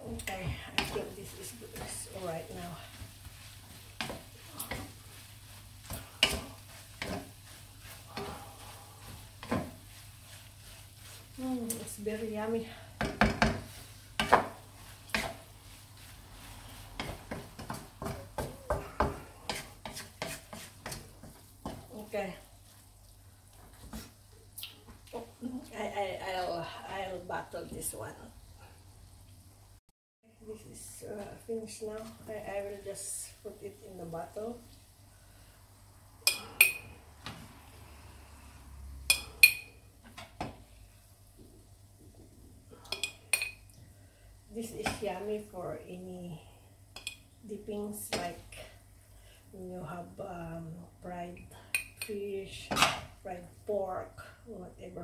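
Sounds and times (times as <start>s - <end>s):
wooden spatula scraping pan: 0.2s - 22.8s.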